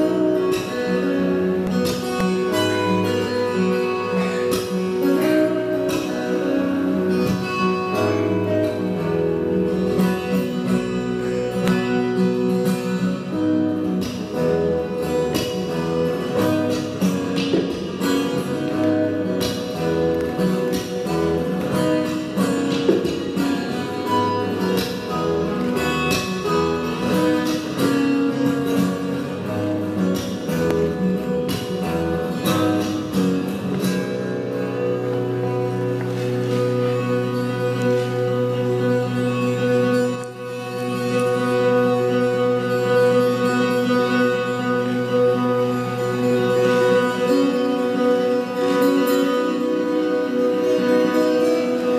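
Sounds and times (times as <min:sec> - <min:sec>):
fingerstyle acoustic guitar: 0:00.0 - 0:51.9.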